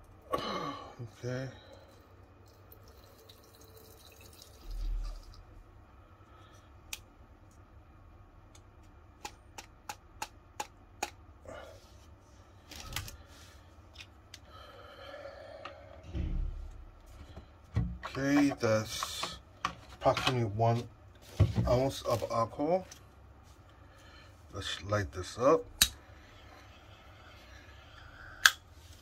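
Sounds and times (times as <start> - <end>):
low bump: 16.1 - 17.1.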